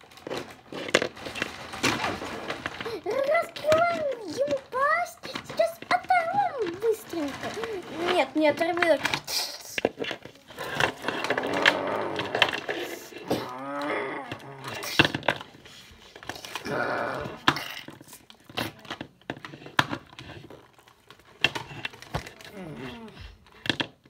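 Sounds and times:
plastic figures clacking on floor: 0:00.0 - 0:24.0
roaring and growling: 0:11.0 - 0:14.9, 0:16.6 - 0:17.5
moaning wail: 0:11.1 - 0:14.9, 0:16.6 - 0:17.5.

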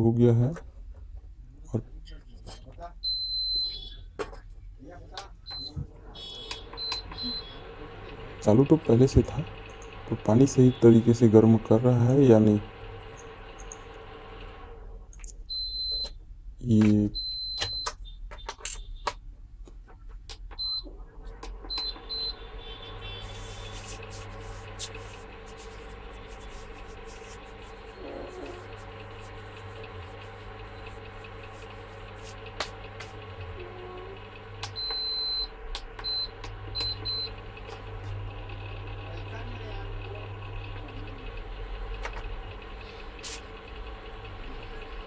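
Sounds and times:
control panel beeps: 0:03.0 - 0:04.0, 0:05.5 - 0:07.6, 0:15.5 - 0:16.2, 0:17.2 - 0:18.2, 0:20.6 - 0:20.9, 0:21.7 - 0:22.4, 0:34.6 - 0:37.4
cooktop humming: 0:06.2 - 0:15.1, 0:21.0 - 0:45.0.

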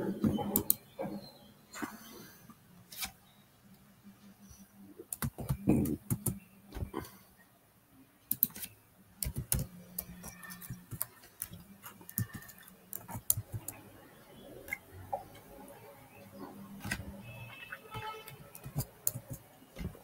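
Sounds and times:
keyboard typing and mouse clicks: 0:00.0 - 0:02.0, 0:05.0 - 0:07.2, 0:08.3 - 0:15.6, 0:16.2 - 0:20.0.

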